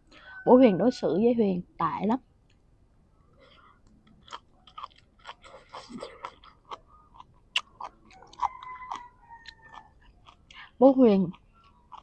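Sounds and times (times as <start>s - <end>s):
person chewing food: 3.2s - 12.0s.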